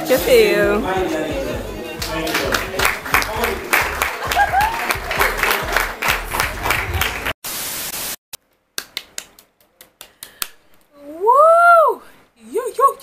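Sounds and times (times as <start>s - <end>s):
music with a steady beat: 0.0s - 7.3s
rhythmic clapping: 1.9s - 7.4s, 8.5s - 10.7s
static hiss: 7.4s - 8.2s.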